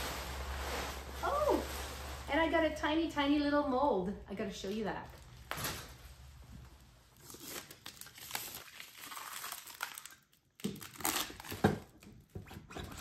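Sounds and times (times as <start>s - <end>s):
plastic and paper crinkling: 0.0s - 2.8s, 4.7s - 12.1s.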